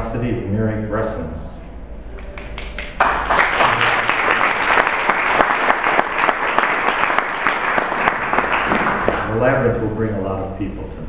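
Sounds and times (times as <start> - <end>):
audience applauding: 2.2 - 9.4.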